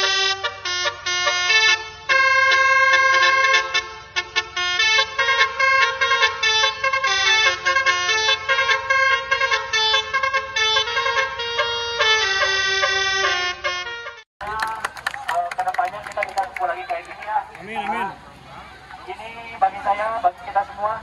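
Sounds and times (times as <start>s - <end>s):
musical car horns playing tune: 0.0s - 14.2s.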